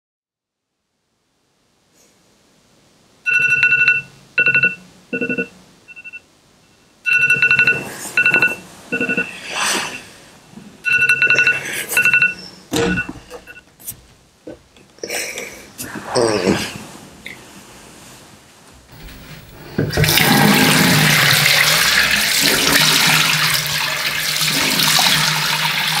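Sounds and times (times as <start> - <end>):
phone ringtone beeps: 3.3 - 10.0, 10.8 - 13.6.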